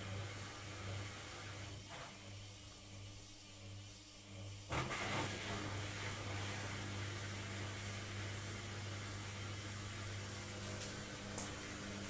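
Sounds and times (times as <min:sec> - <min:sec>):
washing machine motor hum: 0:00.0 - 0:12.0.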